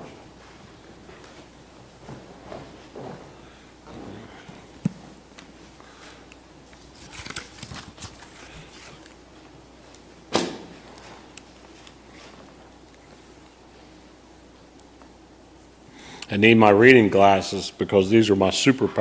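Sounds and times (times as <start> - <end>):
soft rustling: 0.0 - 10.1.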